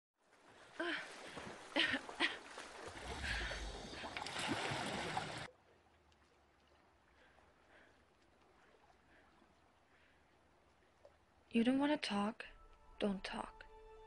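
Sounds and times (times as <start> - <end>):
water splashing against hull: 0.3 - 6.9.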